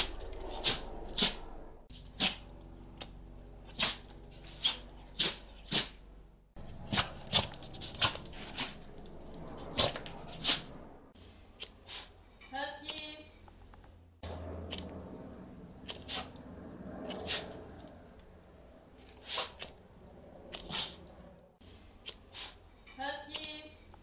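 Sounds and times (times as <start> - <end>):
dog sneezing: 2.2 - 2.4, 3.8 - 4.0, 11.9 - 12.2, 15.9 - 16.3, 19.2 - 19.6, 20.7 - 21.0, 22.3 - 22.6.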